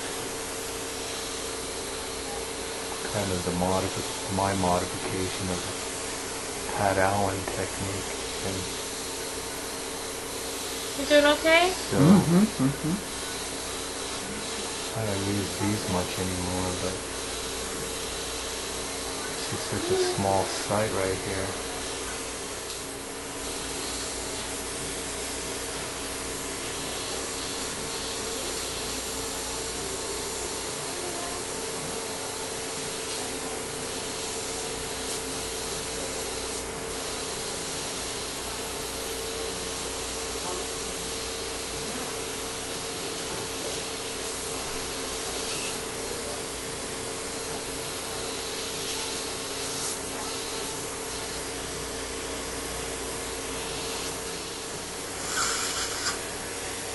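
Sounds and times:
constant hum: 1.9 - 22.8
suction hissing: 52.2 - 56.9.

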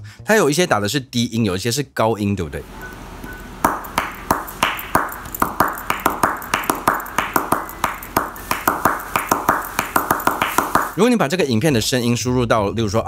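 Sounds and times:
hands slapping a leg: 3.6 - 11.0.

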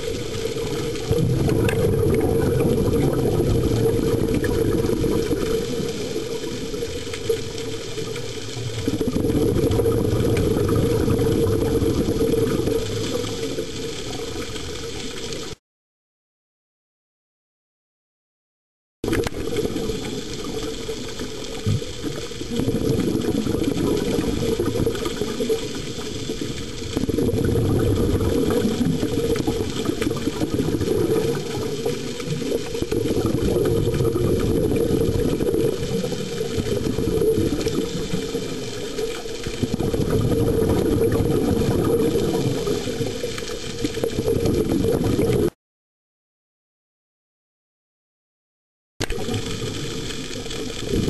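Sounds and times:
underwater breathing bubbling: 0.0 - 14.5, 19.4 - 45.5.

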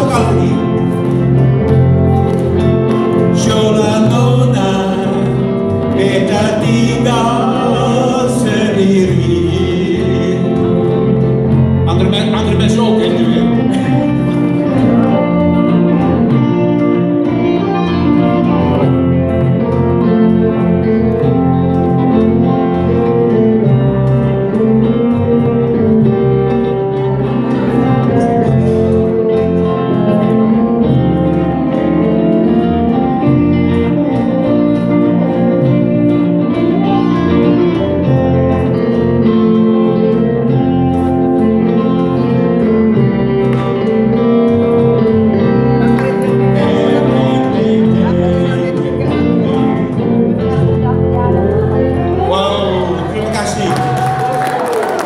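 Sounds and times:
men singing into microphones: 0.0 - 0.9, 3.2 - 11.1, 46.0 - 49.9
electric bass: 0.0 - 55.0
electric guitars: 0.0 - 55.0.

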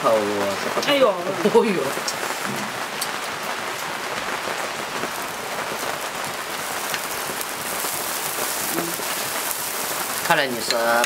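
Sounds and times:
food sizzling on a grill: 0.0 - 11.0.

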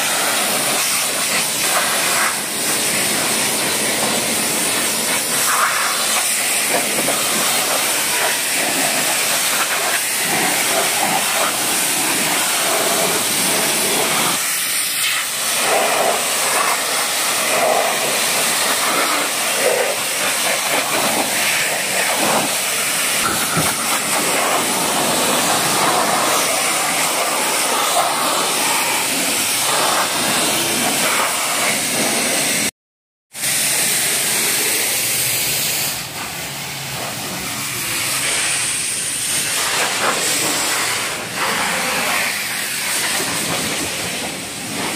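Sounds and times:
water spattering off metal: 0.0 - 32.6
pressure washer jet hissing: 0.0 - 32.7, 33.4 - 44.9.

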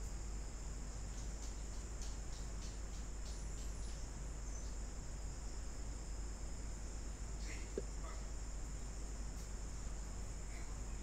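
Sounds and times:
low mains hum: 0.0 - 11.0
faint high ticks: 1.0 - 4.8, 9.3 - 9.6.

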